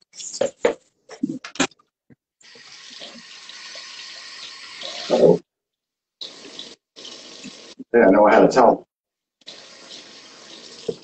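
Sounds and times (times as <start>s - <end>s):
tap water running into sink: 2.4s - 5.3s, 6.2s - 7.8s, 9.4s - 11.0s.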